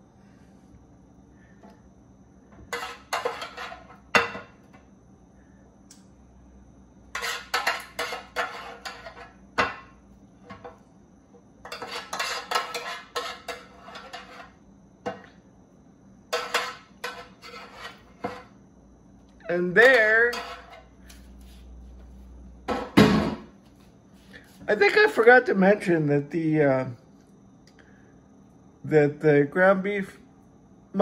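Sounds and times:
metal spoon scraping metal pan: 2.7s - 4.0s, 7.1s - 9.4s, 11.6s - 14.6s, 16.3s - 18.5s, 19.8s - 20.9s.

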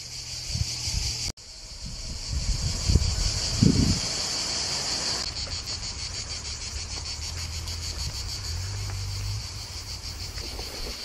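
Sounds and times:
cicadas shrilling: 0.0s - 11.0s.

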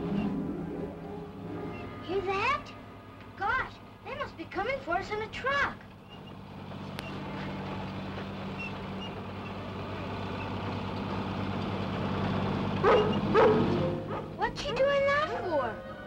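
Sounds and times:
low steady drone: 0.0s - 4.1s
dog whining: 12.8s - 14.4s.

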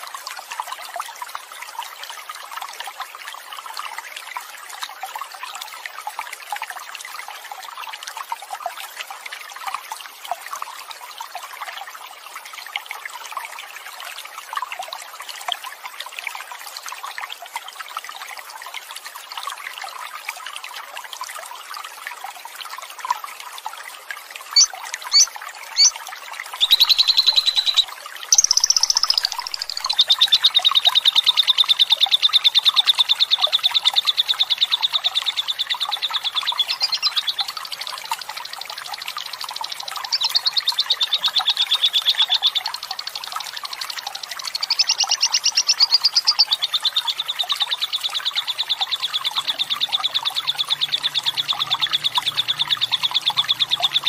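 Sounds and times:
trickle of running water: 0.0s - 54.0s
lovebird chattering trill: 24.5s - 25.9s, 26.6s - 30.4s, 36.6s - 37.3s, 44.6s - 46.7s
short sharp bird chirps: 26.6s - 30.0s.

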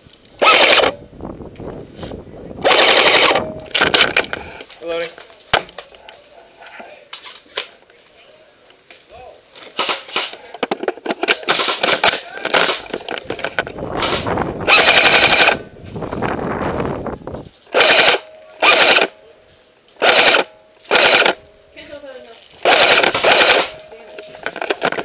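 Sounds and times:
airsoft rifle firing bursts: 0.4s - 1.0s, 2.6s - 3.5s, 14.0s - 15.6s, 17.7s - 19.1s, 20.0s - 21.4s, 22.6s - 23.8s
sling swivel rattling: 0.4s - 1.0s, 2.6s - 4.7s, 9.7s - 15.6s, 17.7s - 19.1s, 20.0s - 21.4s, 22.6s - 25.0s.

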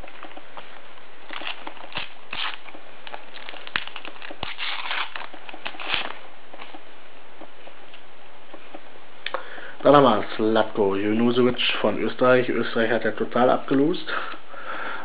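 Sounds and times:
foil packet crinkling and tearing: 1.2s - 6.3s.

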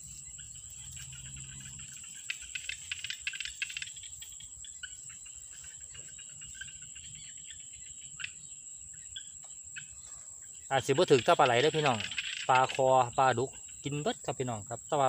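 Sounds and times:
dry grass crackling: 0.0s - 7.0s
insects shrilling: 0.0s - 15.0s.

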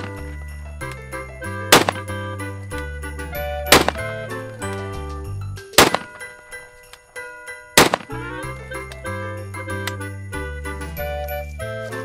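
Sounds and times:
background music: 0.0s - 12.0s
shotgun shots: 1.7s - 2.1s, 3.7s - 4.2s, 5.8s - 6.3s, 7.8s - 8.2s.

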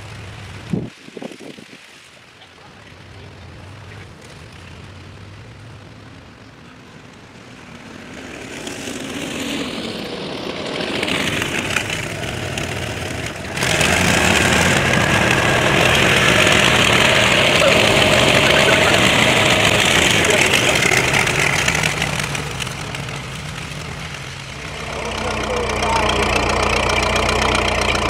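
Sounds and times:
tractor engine running under load: 3.1s - 28.0s.

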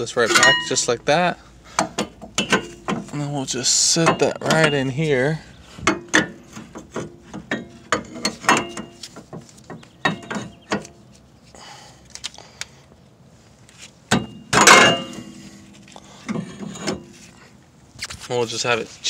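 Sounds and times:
metal brake parts clinking: 0.1s - 1.0s, 1.7s - 5.0s, 5.9s - 11.1s, 14.1s - 17.2s.

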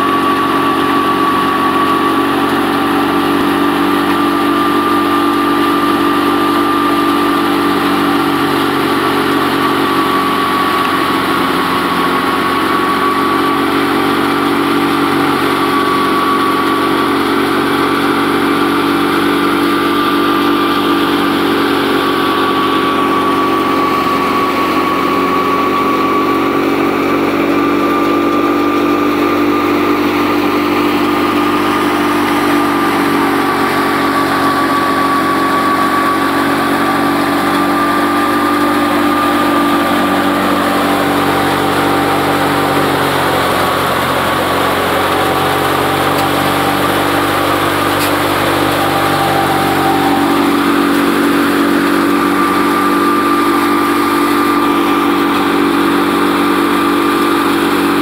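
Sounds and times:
threshing drum and fan whirring: 0.0s - 58.0s
tractor engine under load: 0.0s - 58.0s
steady high whine: 16.6s - 58.0s.

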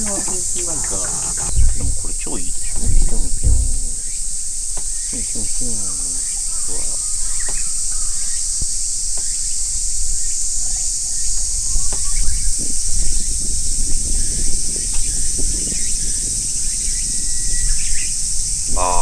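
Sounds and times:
low rumble: 0.0s - 4.2s
insects droning: 0.0s - 19.0s.

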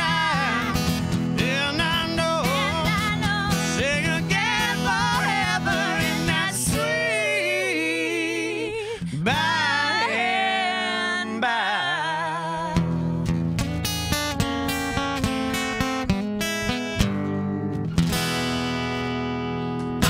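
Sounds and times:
man and woman singing together: 0.0s - 13.0s
acoustic guitar strumming: 0.0s - 20.0s.

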